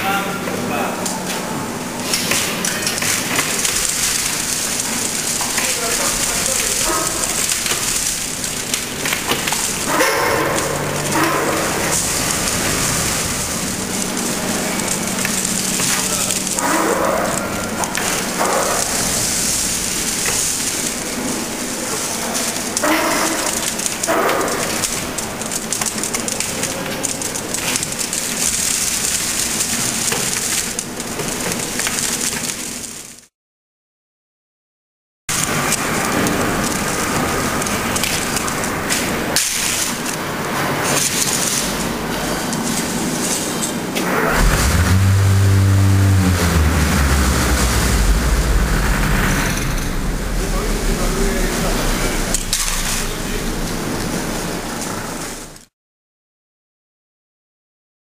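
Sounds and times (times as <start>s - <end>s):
industrial machinery noise: 0.0s - 32.5s, 39.9s - 55.7s
wet concrete pouring: 1.4s - 33.2s, 35.4s - 55.5s
rake scraping wet concrete: 3.1s - 17.4s
steady low hum: 44.3s - 55.4s.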